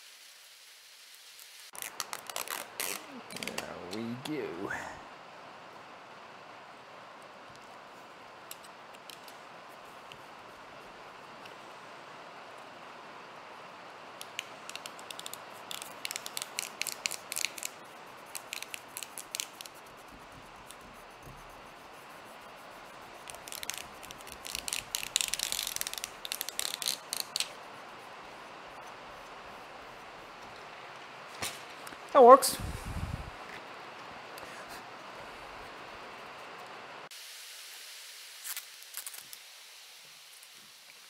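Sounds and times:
sandpaper rustling: 14.7s - 30.4s.

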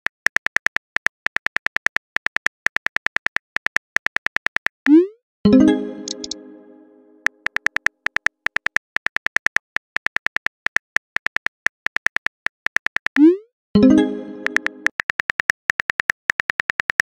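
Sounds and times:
keyboard tap clicks: 6.0s - 6.4s, 14.4s - 17.0s.

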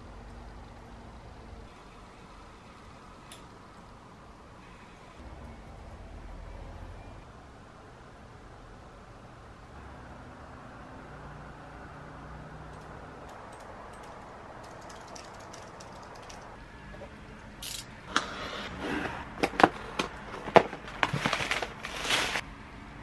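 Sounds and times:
objects clicking and rustling: 19.4s - 22.4s.

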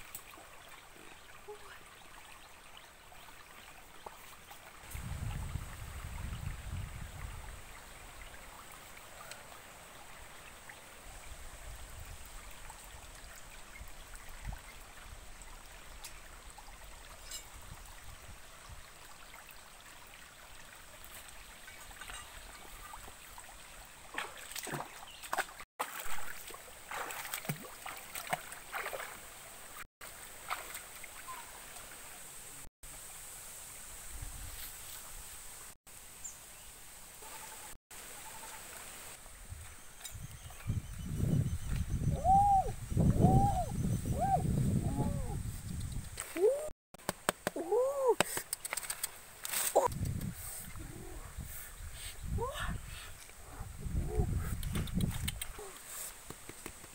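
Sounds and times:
stream trickling over rocks: 0.0s - 36.7s, 47.0s - 50.4s.

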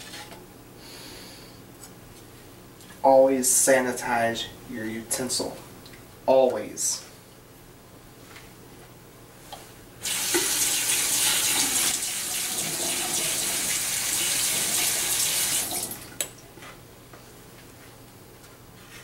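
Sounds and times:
sink tap running: 10.0s - 16.1s.

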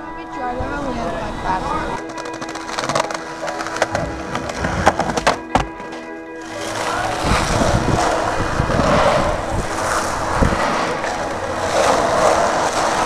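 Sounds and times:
skateboard wheels rolling on concrete: 0.0s - 13.0s
skateboard knocks: 2.0s - 9.2s.

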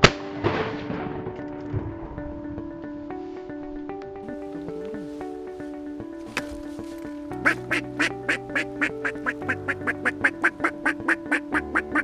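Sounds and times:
background music: 0.0s - 12.0s
duck quacks: 7.4s - 12.0s.

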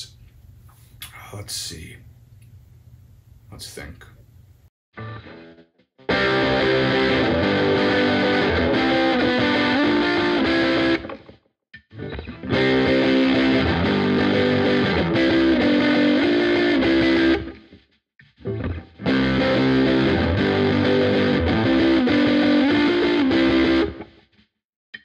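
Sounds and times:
distorted electric guitar riff: 5.0s - 11.3s, 11.9s - 17.7s, 18.4s - 24.2s.

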